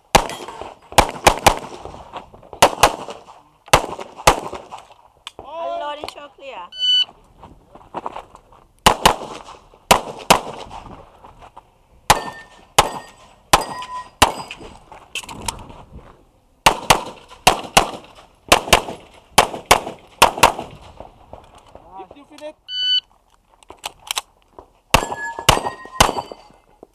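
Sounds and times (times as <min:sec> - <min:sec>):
pistol shots: 0:00.1 - 0:01.8, 0:02.6 - 0:04.8, 0:08.8 - 0:10.7, 0:12.1 - 0:14.6, 0:16.6 - 0:20.8, 0:24.9 - 0:26.5.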